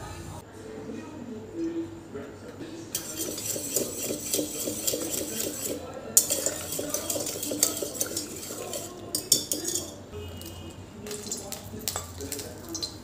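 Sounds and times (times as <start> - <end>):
whisk rattling against steel pot: 2.9 - 10.1, 11.1 - 13.0.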